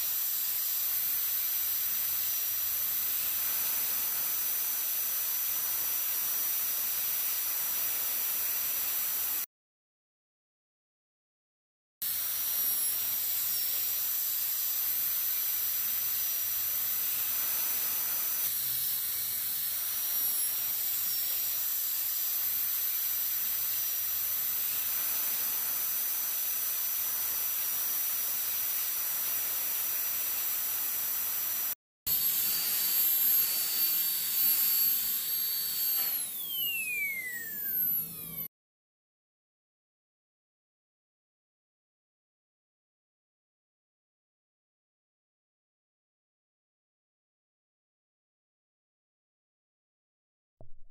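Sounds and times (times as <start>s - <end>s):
dental drill whine: 0.0s - 9.5s, 12.0s - 38.5s.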